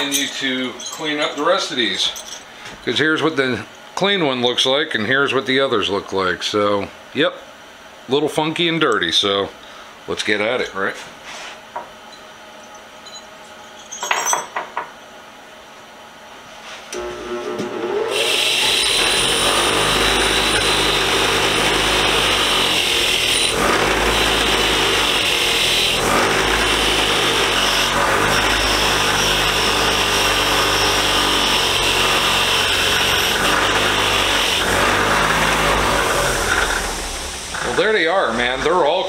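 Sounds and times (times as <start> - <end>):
bench grinder motor hum: 17.0 - 39.0.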